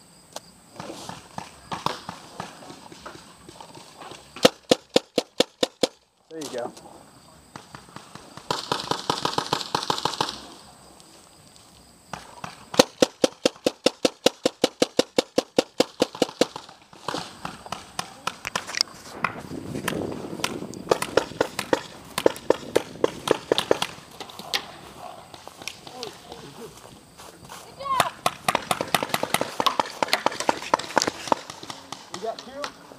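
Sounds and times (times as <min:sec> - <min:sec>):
paintball markers firing: 0:04.4 - 0:06.0, 0:12.1 - 0:24.7, 0:28.0 - 0:32.8.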